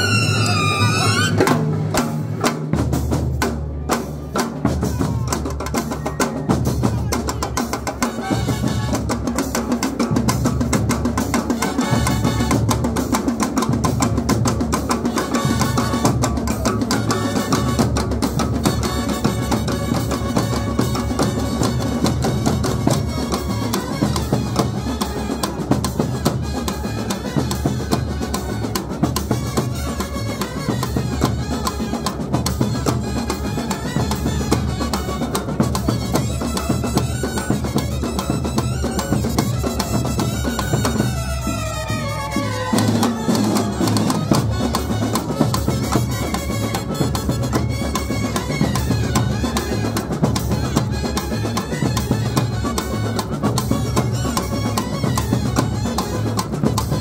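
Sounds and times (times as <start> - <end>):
brass horns: 8.0 - 9.6, 11.4 - 12.9, 15.0 - 32.2, 39.2 - 57.0
fast dense drumming: 42.7 - 57.0.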